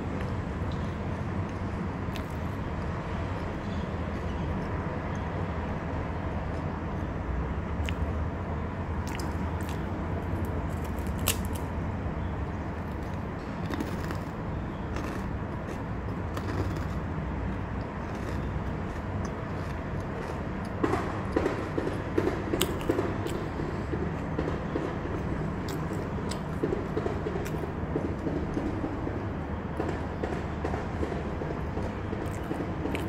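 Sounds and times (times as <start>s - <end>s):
steady low rumble: 0.0s - 33.0s
crunchy snack being chewed: 1.4s - 3.5s, 9.0s - 11.7s, 12.8s - 23.5s, 25.2s - 26.7s.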